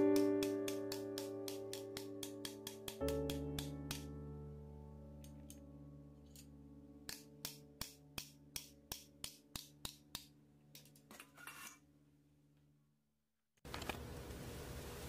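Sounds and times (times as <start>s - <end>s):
quiet background music: 0.0s - 11.1s.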